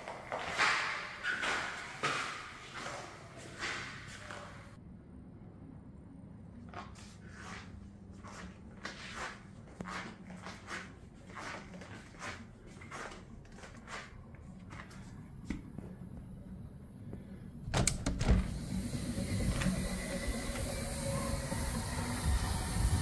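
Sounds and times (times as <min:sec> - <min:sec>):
rushing noise with low rumble: 0:18.4 - 0:23.0.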